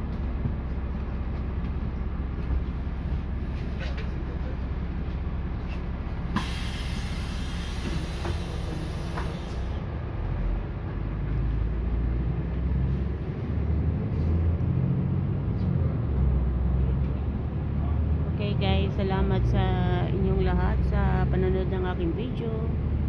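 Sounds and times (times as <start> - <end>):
bus engine and road rumble: 0.0 - 23.0
air hiss: 6.4 - 9.8.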